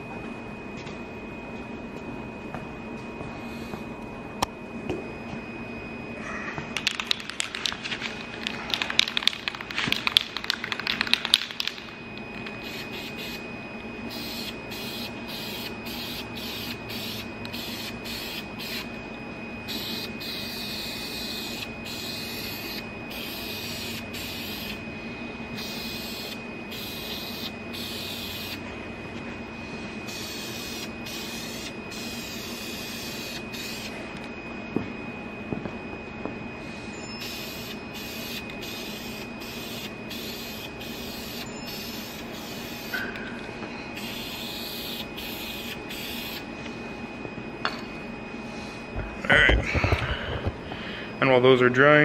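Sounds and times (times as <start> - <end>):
spray can ball rattling: 6.8 - 11.9.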